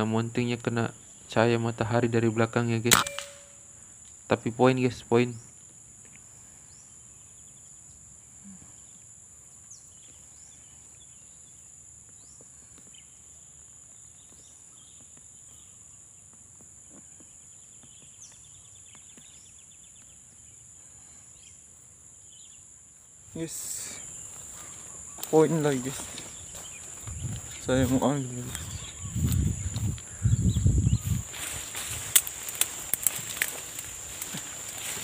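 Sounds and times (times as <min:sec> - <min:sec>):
insects droning: 0:00.0 - 0:35.0
bird chirps: 0:02.8 - 0:03.8, 0:23.4 - 0:32.1
bird trill: 0:02.8 - 0:03.8.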